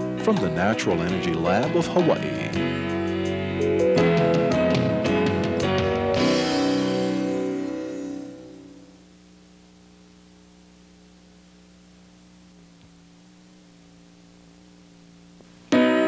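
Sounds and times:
music: 0:00.0 - 0:09.0, 0:13.6 - 0:16.0
electrical hum: 0:00.0 - 0:16.0
tape hiss: 0:00.0 - 0:16.0.

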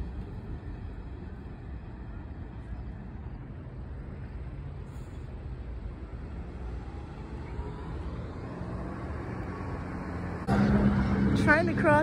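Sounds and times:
bus and cars idling: 0:00.0 - 0:12.0
street traffic rumble: 0:00.0 - 0:12.0.

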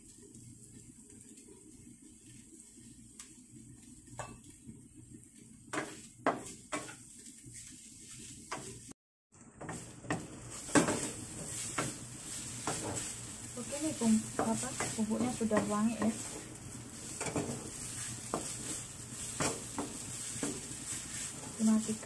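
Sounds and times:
light sizzle: 0:00.0 - 0:22.0
wooden spatula scraping pan: 0:05.7 - 0:08.9, 0:09.6 - 0:22.0.

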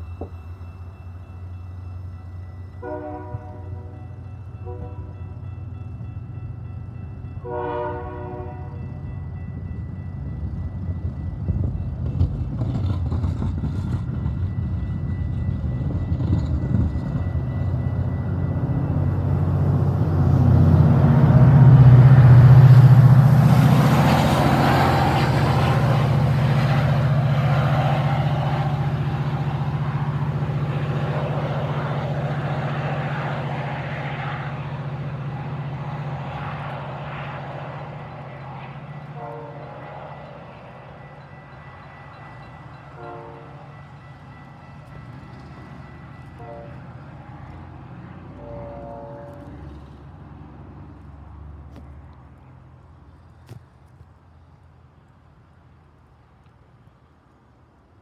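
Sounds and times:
diesel locomotive engine drone: 0:00.0 - 0:58.0
train coaches rolling over rails: 0:09.4 - 0:51.1.

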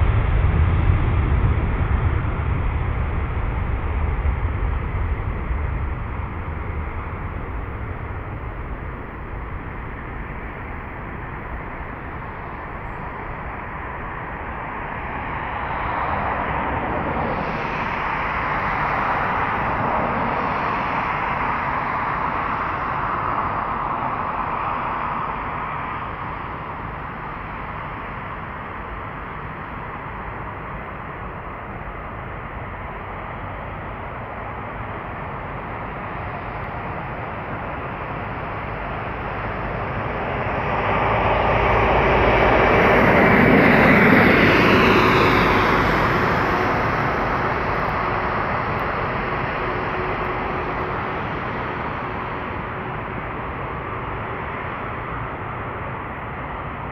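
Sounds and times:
faint falling jet whine: 0:00.0 - 0:27.4, 0:37.8 - 0:53.2
distant jet engine rumble: 0:00.0 - 0:56.9.

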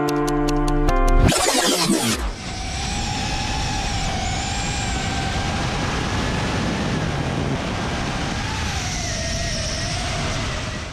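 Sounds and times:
drone motors whirring: 0:01.2 - 0:07.3
wind rumble on microphone: 0:02.3 - 0:10.9.

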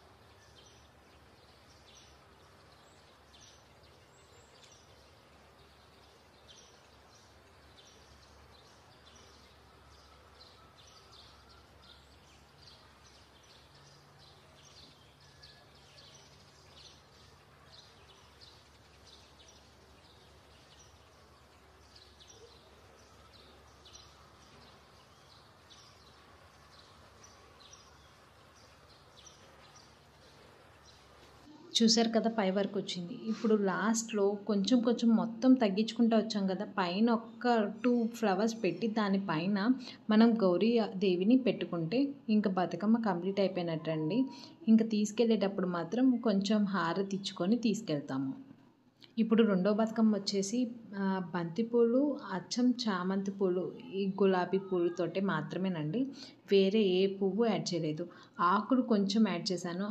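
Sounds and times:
small bird chirping: 0:00.0 - 0:31.5
faint low hum: 0:00.0 - 0:59.9.

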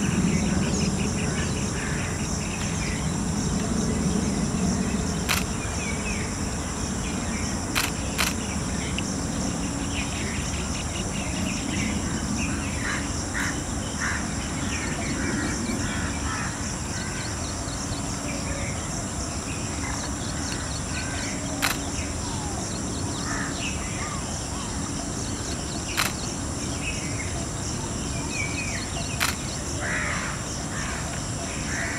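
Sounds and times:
small birds chirping: 0:00.0 - 0:13.0, 0:13.7 - 0:30.2
high-pitched insect drone: 0:00.0 - 0:31.9
sharp clicks: 0:05.2 - 0:05.6, 0:07.7 - 0:08.5, 0:21.6 - 0:22.0, 0:25.9 - 0:26.3, 0:29.2 - 0:29.6.

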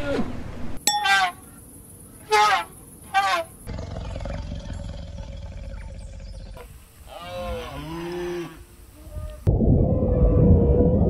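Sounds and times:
lion rumbling and calling: 0:03.7 - 0:10.8
whale call: 0:07.4 - 0:11.0
underwater noise: 0:09.2 - 0:11.0.

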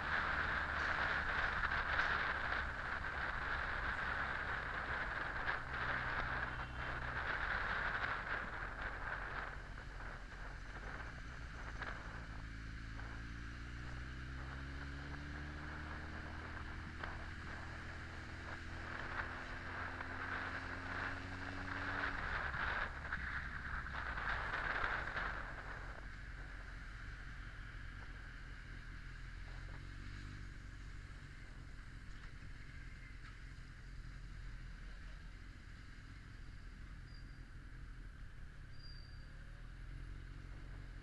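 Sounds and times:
wind rush on microphone: 0:00.0 - 0:26.8
motorcycle engine running: 0:00.0 - 0:41.0.

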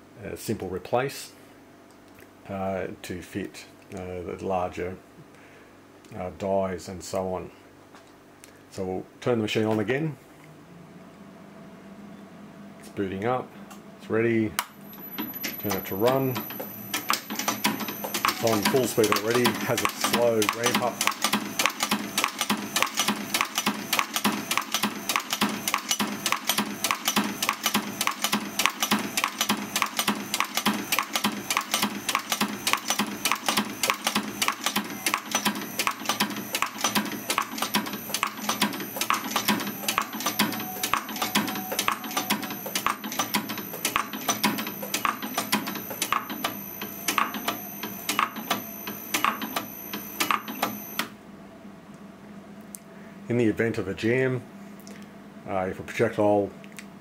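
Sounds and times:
machine clicking: 0:14.6 - 0:51.1.

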